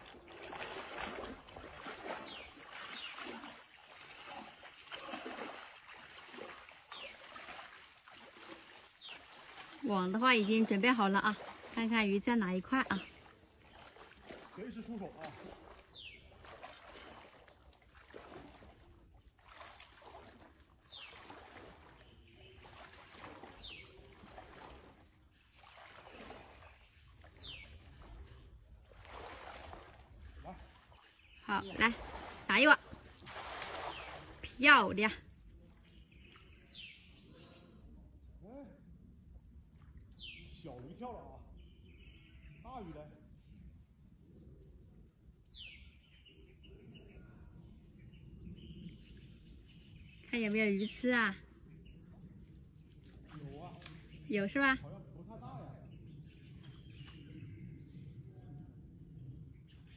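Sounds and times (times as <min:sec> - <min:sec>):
water splashing around wading legs: 0:00.0 - 0:36.9, 0:52.0 - 0:54.3.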